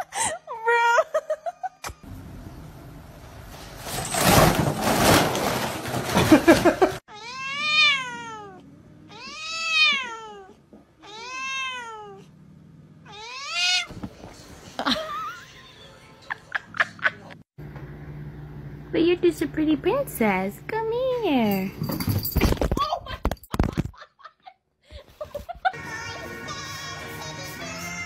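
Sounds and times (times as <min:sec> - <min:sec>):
cat yowling: 0:07.1 - 0:12.2, 0:13.0 - 0:13.9.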